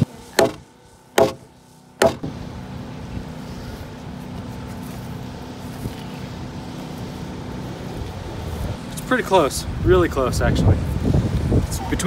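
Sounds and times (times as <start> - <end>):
steady engine hum: 0.0 - 12.0
hammer blows on timber beam: 0.3 - 2.3.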